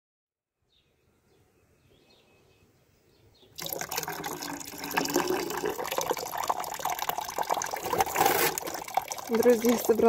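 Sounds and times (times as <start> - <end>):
tap water pouring into saucepan: 3.6 - 10.0.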